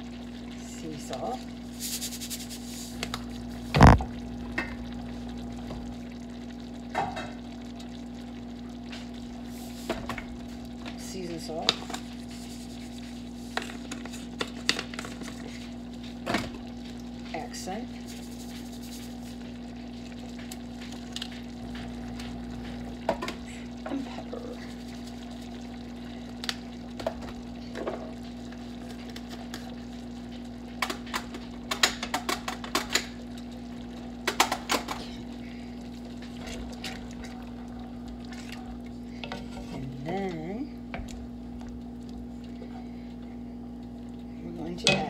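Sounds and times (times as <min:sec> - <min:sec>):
steady low hum: 0:00.0 - 0:45.0.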